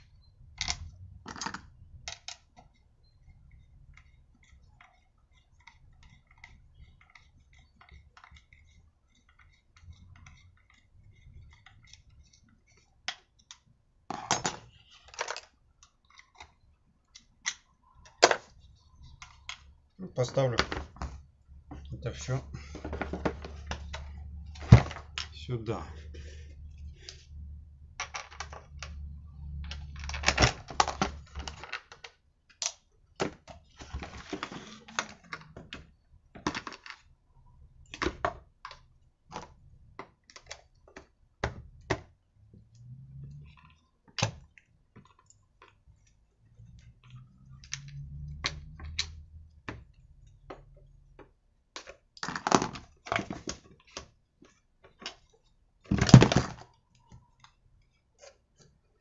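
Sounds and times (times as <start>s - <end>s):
plastic and metal parts clicking: 0.1s - 25.5s, 29.6s - 37.1s.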